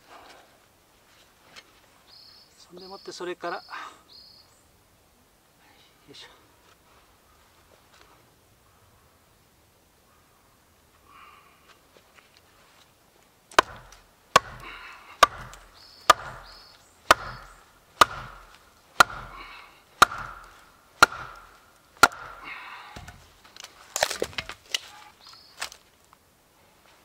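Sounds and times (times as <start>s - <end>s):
log splitting with crackling: 13.5s - 26.2s
wooden club knocking on hatchet: 13.6s - 22.4s.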